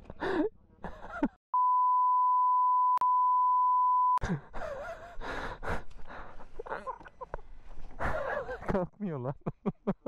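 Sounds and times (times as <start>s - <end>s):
censor bleep tone: 1.6s - 4.2s
breathing: 5.0s - 6.6s.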